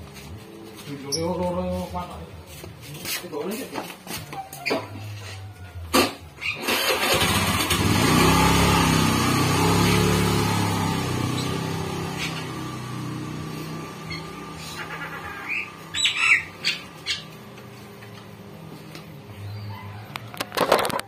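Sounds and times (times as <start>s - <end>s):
engine starting and running: 5.9s - 15.9s.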